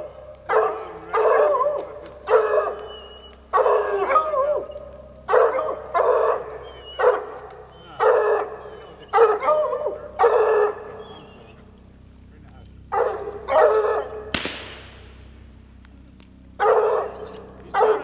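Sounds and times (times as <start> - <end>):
hounds barking: 0.0 - 12.1, 12.7 - 15.2, 15.8 - 18.0.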